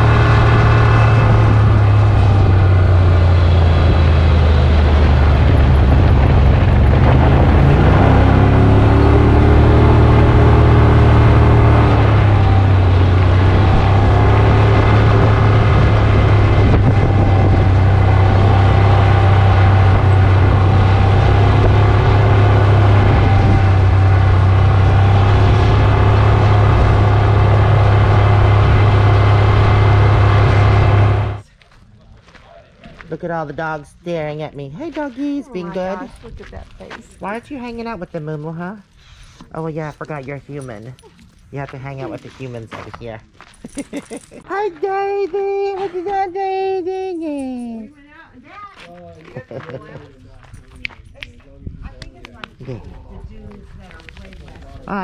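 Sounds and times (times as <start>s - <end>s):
vehicle engine running: 0.0s - 31.5s.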